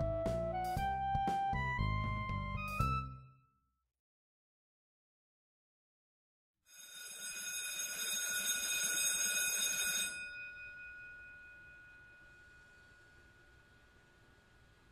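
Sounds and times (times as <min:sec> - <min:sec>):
bell rung rapidly: 0:06.9 - 0:13.6.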